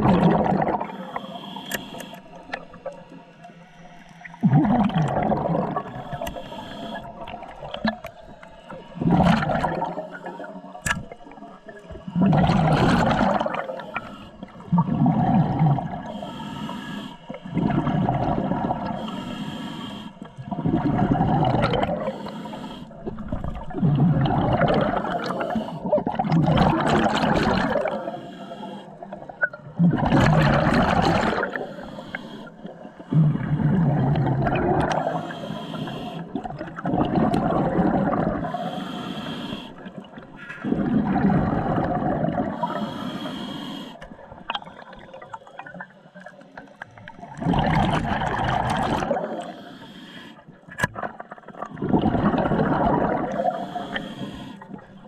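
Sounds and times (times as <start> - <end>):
regulator exhaled bubbles rushing: 0.0 - 1.1, 4.4 - 16.1, 17.4 - 19.0, 20.4 - 22.1, 22.9 - 28.1, 29.0 - 31.6, 32.6 - 35.2, 36.2 - 38.6, 39.9 - 42.8, 47.0 - 49.5, 50.9 - 53.7
diver inhaling through regulator: 0.3 - 2.8, 4.6 - 10.9, 12.0 - 26.2, 27.1 - 29.2, 30.1 - 45.8, 47.9 - 50.6, 52.2 - 55.0.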